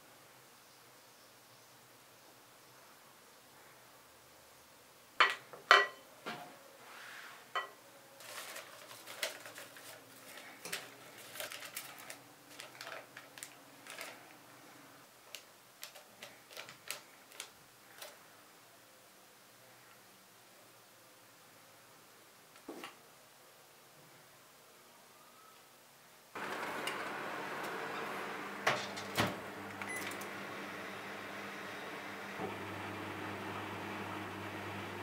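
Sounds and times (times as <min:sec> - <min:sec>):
parchment paper crinkling: 0:08.2 - 0:14.4, 0:15.3 - 0:18.2.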